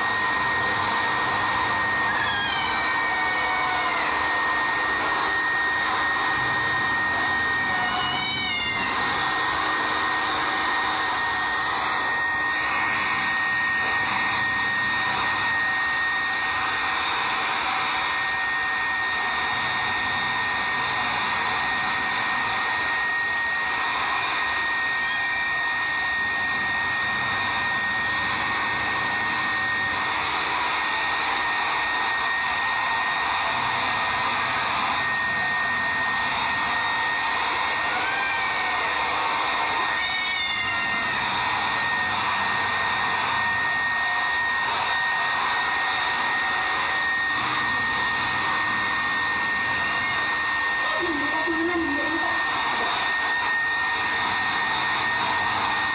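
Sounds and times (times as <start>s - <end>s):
hair dryer blowing: 0.0s - 55.9s
cat meowing: 1.5s - 14.3s, 24.8s - 26.1s, 37.7s - 39.1s, 39.7s - 41.9s, 49.3s - 50.6s.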